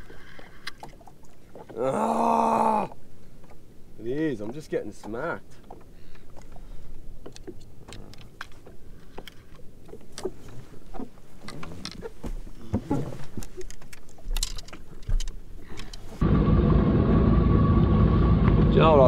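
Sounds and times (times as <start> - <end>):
fishing gear clicks and taps: 4.4 - 16.1
jet ski engine running: 16.2 - 19.0.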